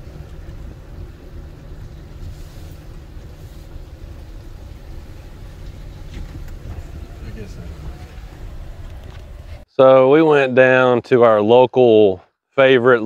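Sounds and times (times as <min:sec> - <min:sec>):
vehicle engine low rumble: 0:00.0 - 0:09.7.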